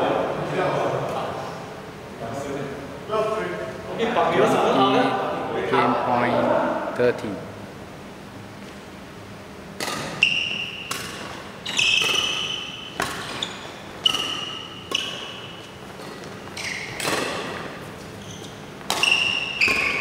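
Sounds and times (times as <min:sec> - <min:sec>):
racket hitting shuttlecock: 0:09.8 - 0:18.1, 0:18.8 - 0:20.0.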